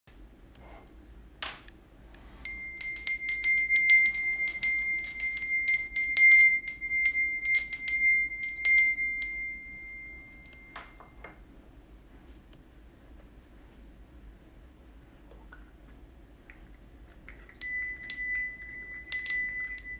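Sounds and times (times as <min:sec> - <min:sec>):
hand bell ringing: 0:02.5 - 0:11.2, 0:17.6 - 0:19.9.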